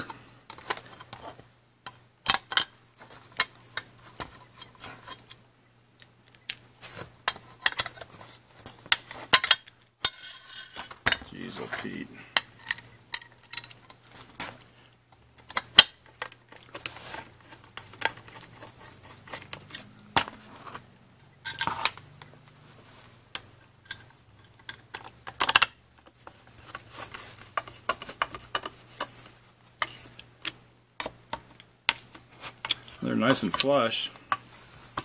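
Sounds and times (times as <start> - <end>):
screws clinking on metal plate: 9.4 - 11.2, 12.4 - 14.0.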